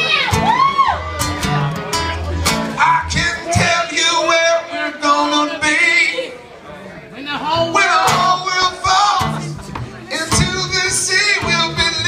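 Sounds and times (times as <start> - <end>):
acoustic guitar strumming: 0.0 - 6.2, 7.4 - 12.0
person singing wordless notes: 7.4 - 12.0.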